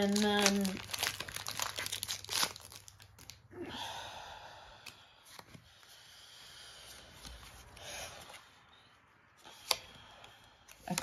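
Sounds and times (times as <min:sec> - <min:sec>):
foil wrapper crinkling and tearing: 0:00.0 - 0:03.4.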